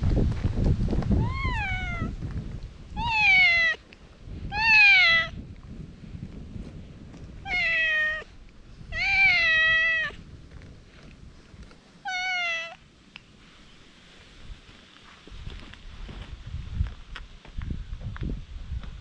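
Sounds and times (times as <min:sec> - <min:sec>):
cat meowing loudly: 0:01.2 - 0:02.2, 0:02.9 - 0:03.8, 0:04.5 - 0:05.4, 0:07.4 - 0:08.3, 0:08.9 - 0:10.2, 0:12.0 - 0:12.8.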